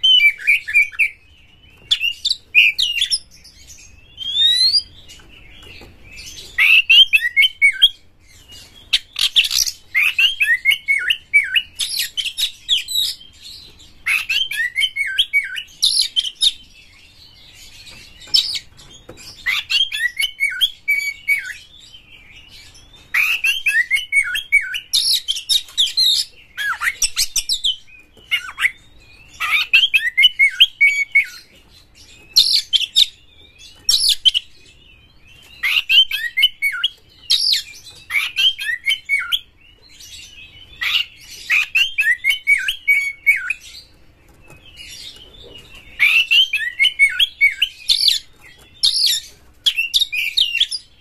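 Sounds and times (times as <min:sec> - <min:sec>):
bird singing whistles and chatter: 0:00.0 - 0:16.7, 0:17.6 - 0:51.0.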